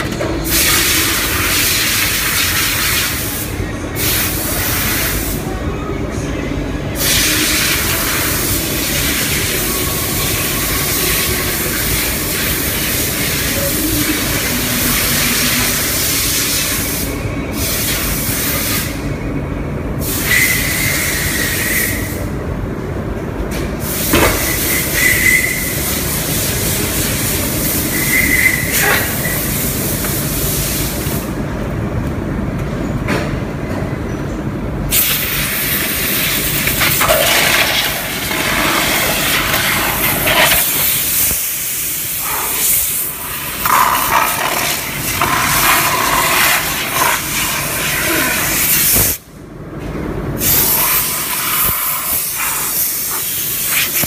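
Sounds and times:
machine noise: 6.8s - 17.6s, 35.0s - 49.2s.

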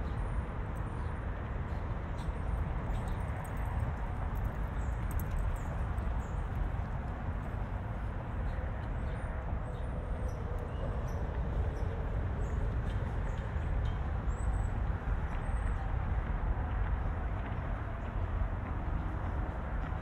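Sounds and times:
low traffic rumble: 0.0s - 20.0s.

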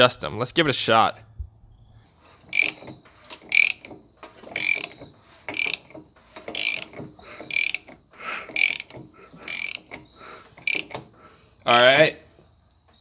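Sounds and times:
ratchet wrench clicking: 2.5s - 11.0s.

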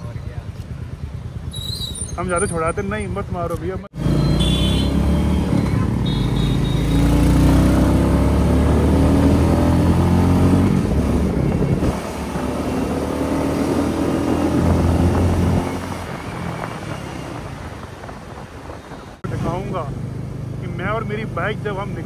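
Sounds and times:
motorcycle engine accelerating: 3.9s - 18.2s.

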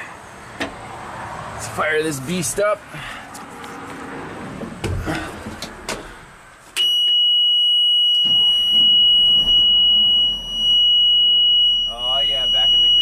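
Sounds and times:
high-pitched warning buzzer: 6.9s - 13.0s.

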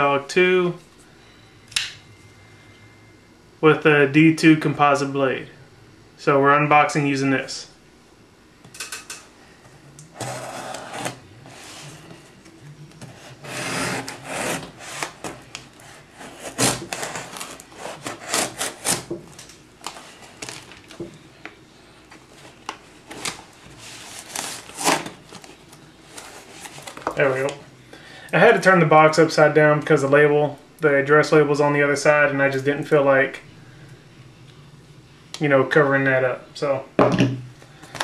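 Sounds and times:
tape crackling: 10.0s - 27.6s
cardboard rubbing: 10.1s - 12.4s, 13.0s - 19.1s, 22.2s - 27.2s
knife slicing packing tape: 13.4s - 19.1s, 24.0s - 25.2s.

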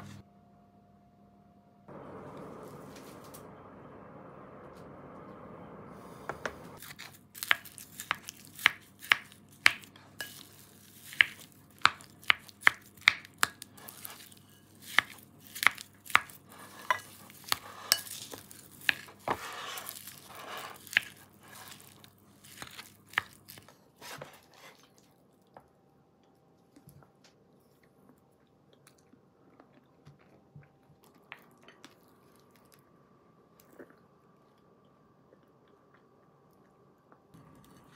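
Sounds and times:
food mixing noise: 6.8s - 25.1s.

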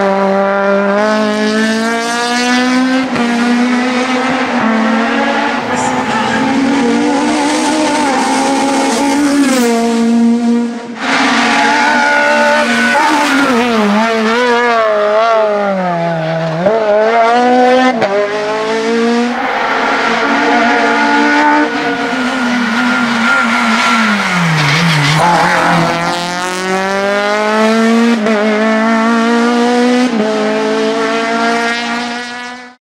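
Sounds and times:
race car engine revving: 0.0s - 32.8s.

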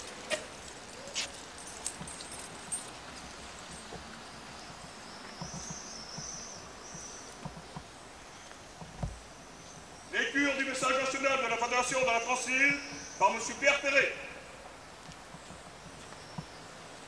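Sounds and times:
footsteps on stone paving: 0.0s - 9.9s, 15.0s - 16.6s.

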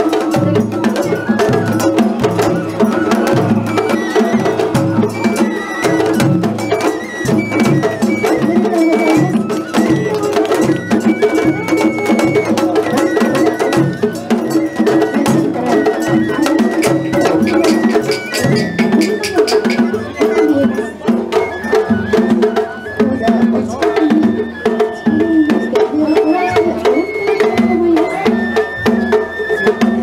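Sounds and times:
small drum fast strokes: 0.0s - 22.9s
bamboo flute melody: 0.0s - 30.0s
large drum beats: 0.0s - 30.0s.

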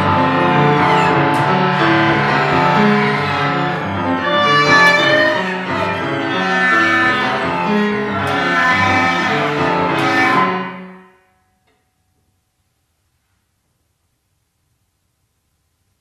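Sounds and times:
chamber ensemble sustained notes: 0.0s - 11.0s.

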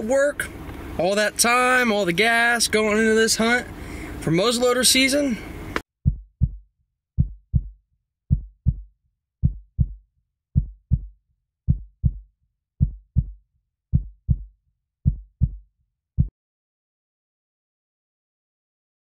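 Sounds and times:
heartbeat thumps: 6.0s - 10.0s, 10.6s - 15.6s.

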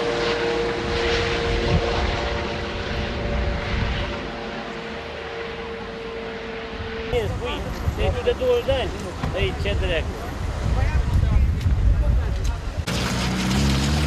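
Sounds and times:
helicopter flying overhead: 0.0s - 10.6s.

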